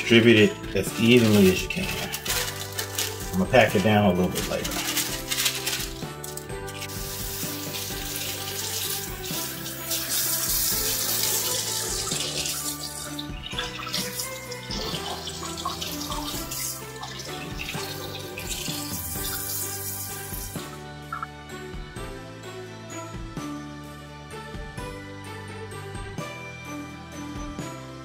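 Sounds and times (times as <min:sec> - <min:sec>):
background music: 0:00.0 - 0:28.0
faucet water splashing into sink: 0:06.9 - 0:21.3.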